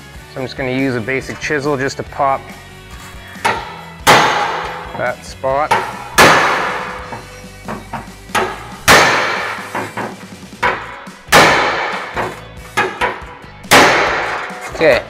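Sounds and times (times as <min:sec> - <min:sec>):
hammer striking chisel on steel: 0:05.7 - 0:14.8.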